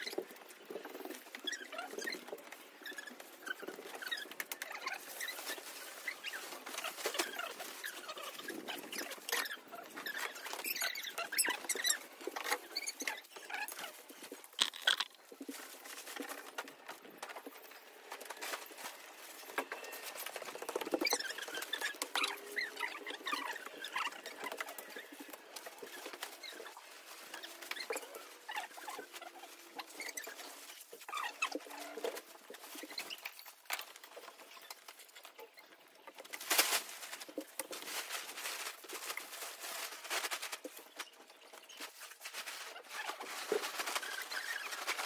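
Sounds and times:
tent fabric rustling: 36.3 - 45.0.

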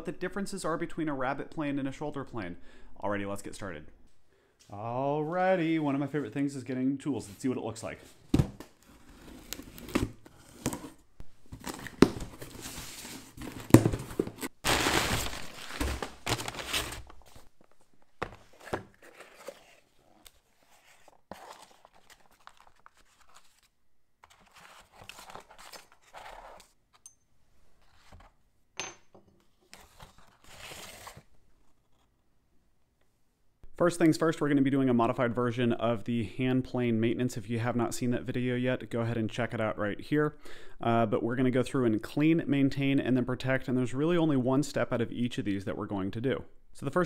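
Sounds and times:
cardboard box opening: 8.3 - 17.4, 18.2 - 26.7
cardboard tearing: 8.5 - 17.4, 18.5 - 23.7, 29.9 - 31.3
wrapping paper rustling: 11.5 - 26.7.

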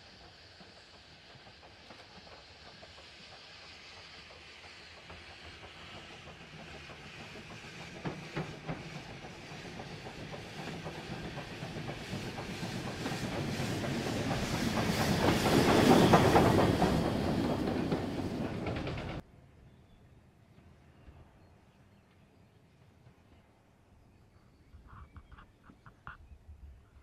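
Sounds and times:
steam hissing: 0.0 - 19.2
train wheels clicking over rail joints: 0.0 - 19.2.

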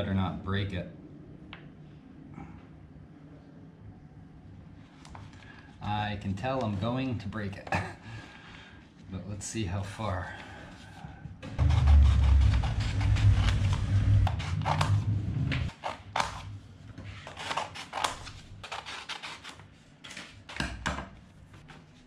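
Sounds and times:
low rumble: 11.4 - 15.7
scissors snipping paper: 17.2 - 20.6.

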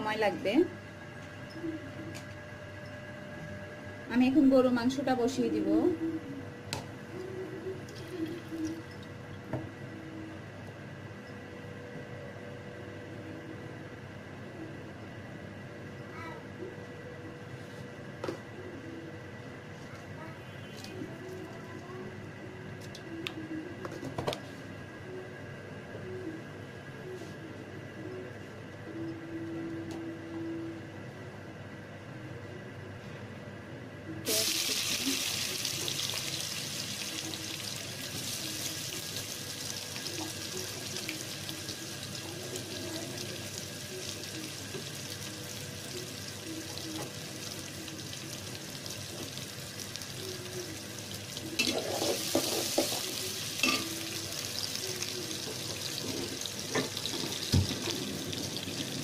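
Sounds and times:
onions sizzling in hot oil: 34.2 - 59.0.

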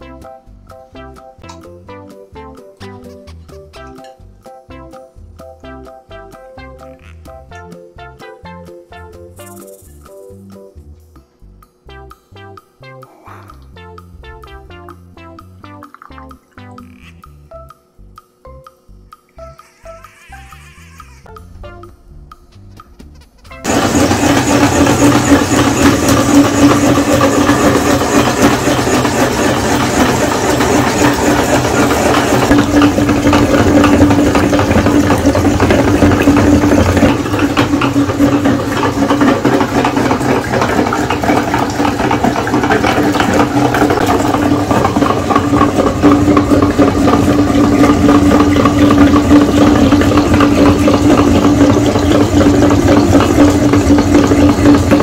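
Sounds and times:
meat grinder motor humming: 23.6 - 55.0.

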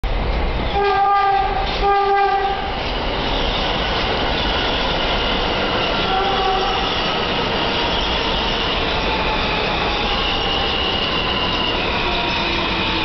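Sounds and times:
train clattering and rumbling past: 0.0 - 13.0
subway train horn blasts: 0.7 - 2.8, 6.0 - 7.2.

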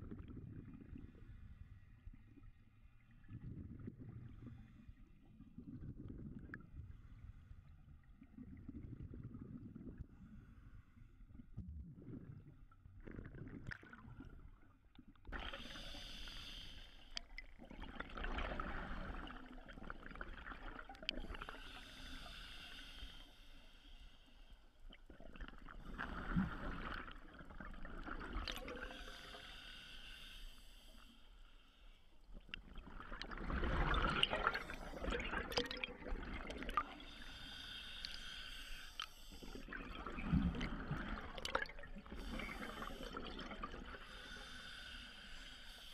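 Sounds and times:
hissing regulator inhalations: 15.6 - 17.2, 21.4 - 24.5, 28.8 - 32.0, 37.0 - 39.7, 44.0 - 45.9.

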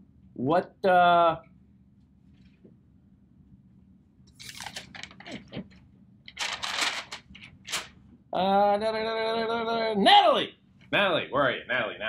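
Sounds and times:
paper rustling: 4.4 - 8.0.

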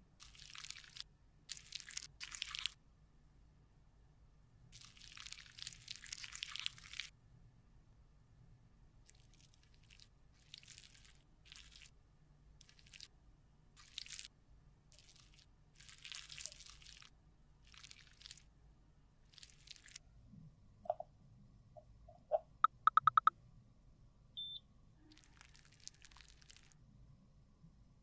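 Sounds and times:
faint beep: 22.6 - 23.3, 24.4 - 24.6.

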